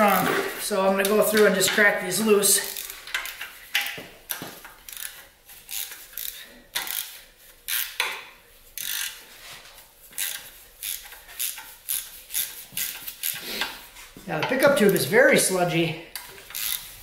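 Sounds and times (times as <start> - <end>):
ratchet wrench clicking: 2.6 - 8.2, 8.8 - 9.2, 10.2 - 13.4, 16.2 - 17.0.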